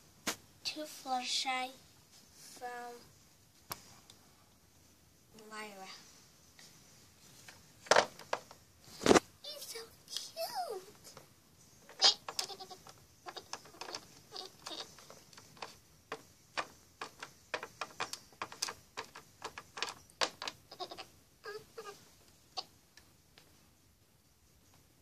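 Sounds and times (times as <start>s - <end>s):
plastic toy tapping on hard surface: 11.9s - 21.1s.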